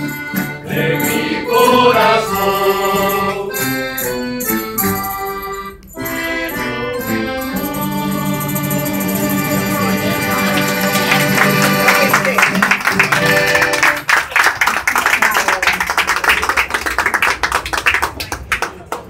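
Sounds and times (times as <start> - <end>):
guitars and accordion playing: 0.0 - 14.1.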